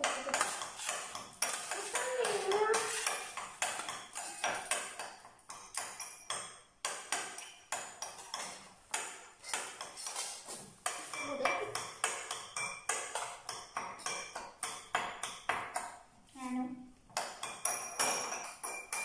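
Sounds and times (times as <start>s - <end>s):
metal spoon clinking on glass: 0.0s - 8.6s, 17.2s - 19.0s.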